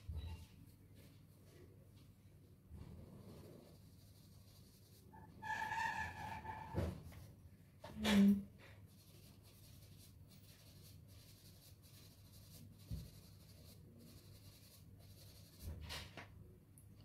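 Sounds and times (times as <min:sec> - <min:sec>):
pastel rubbing on paper: 0:03.2 - 0:07.3, 0:08.9 - 0:16.0.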